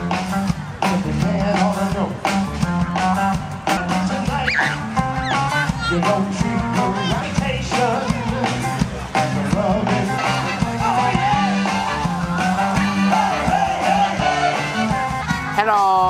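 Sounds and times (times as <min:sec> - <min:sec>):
live band playing: 0:00.0 - 0:16.0
person singing: 0:03.7 - 0:11.4.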